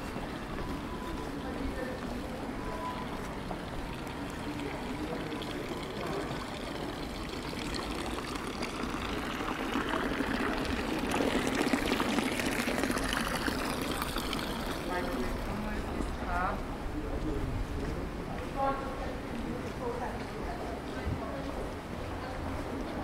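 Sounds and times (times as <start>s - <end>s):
water pouring and splashing: 3.0s - 16.1s.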